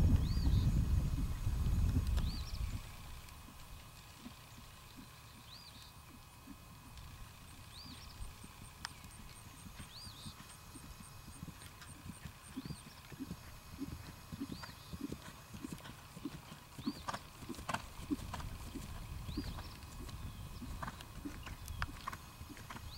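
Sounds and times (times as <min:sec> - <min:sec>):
horse hoofbeats on grass: 0:00.0 - 0:22.9
sharp clicks: 0:20.9 - 0:22.6.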